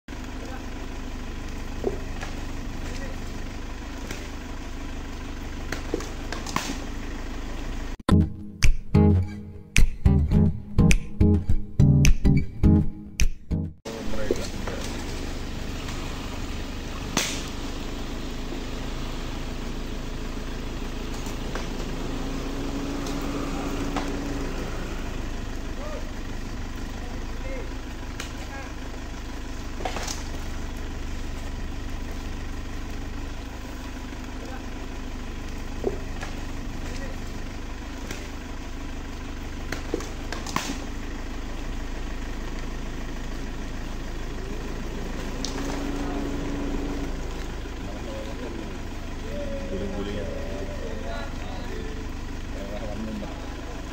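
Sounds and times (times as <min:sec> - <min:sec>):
vehicle engine idling: 0:00.1 - 0:11.8, 0:13.8 - 0:53.9
sharp crack: 0:05.7 - 0:07.0, 0:17.0 - 0:17.7, 0:39.7 - 0:41.0.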